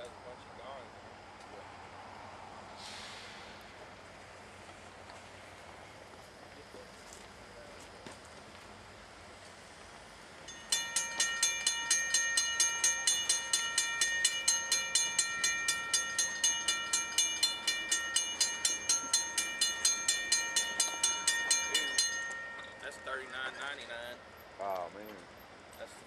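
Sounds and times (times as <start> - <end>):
railroad crossing warning bell ringing: 10.4 - 26.0.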